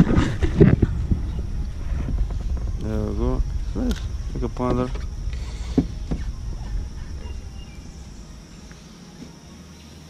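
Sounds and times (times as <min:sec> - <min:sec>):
low rumble: 0:00.0 - 0:09.2
insects buzzing: 0:00.0 - 0:10.0.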